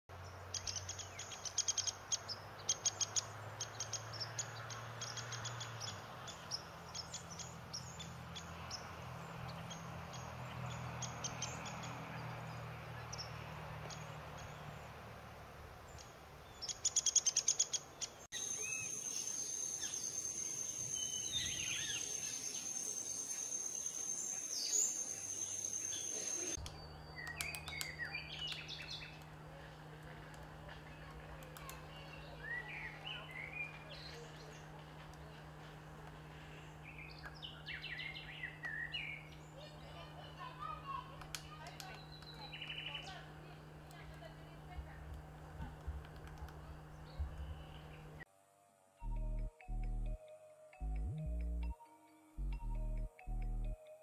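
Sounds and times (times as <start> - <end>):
woodpecker pecking on bark: 26.6 - 32.0, 43.7 - 47.8.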